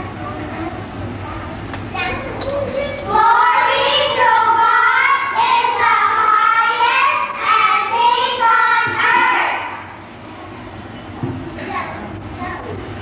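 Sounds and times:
children singing: 3.1s - 9.8s.

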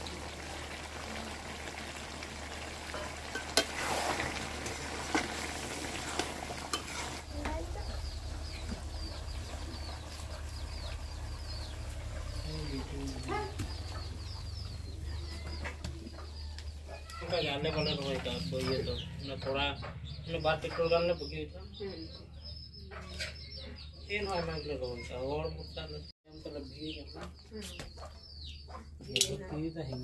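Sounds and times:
food sizzling in a pan: 0.0s - 8.9s
birds chirping: 0.0s - 30.0s
chicken clucking: 7.5s - 19.1s.

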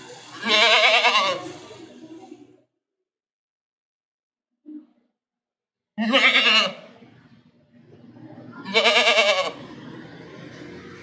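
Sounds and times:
goat bleating: 0.3s - 1.6s, 6.0s - 7.0s, 8.6s - 9.6s.

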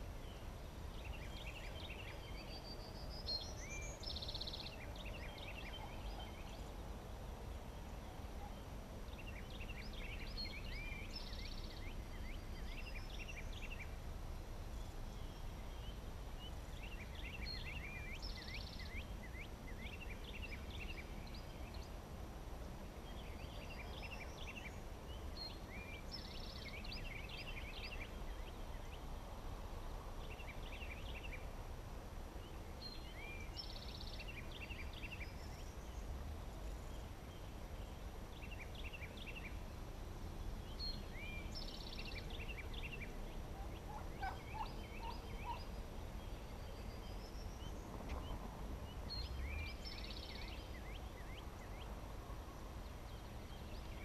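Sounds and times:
songbird chirpy song: 0.0s - 54.0s
wild turkey calling: 43.6s - 45.7s.

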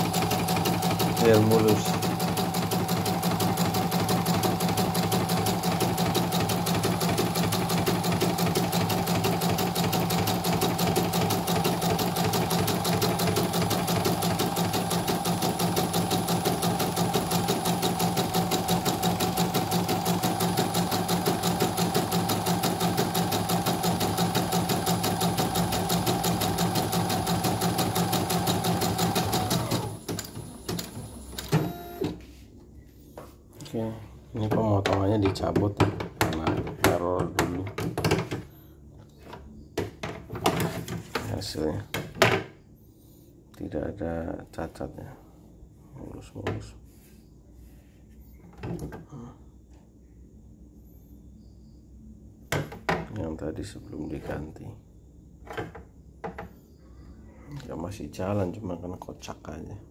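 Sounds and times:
embroidery machine stitching rapidly: 0.0s - 32.0s.

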